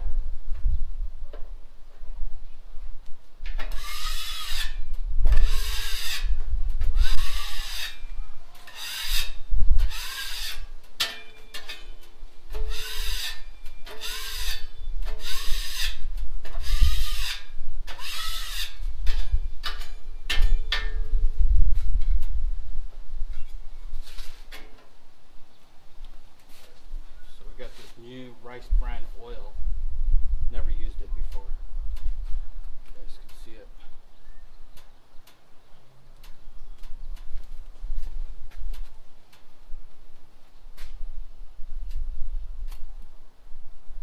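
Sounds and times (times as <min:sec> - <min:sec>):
tool scraping steel griddle: 0:03.6 - 0:04.8, 0:05.4 - 0:06.3, 0:06.9 - 0:21.0.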